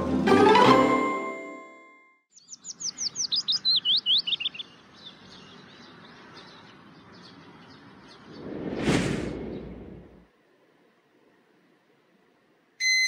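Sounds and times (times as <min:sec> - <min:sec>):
songbird chirping: 0:02.3 - 0:08.8.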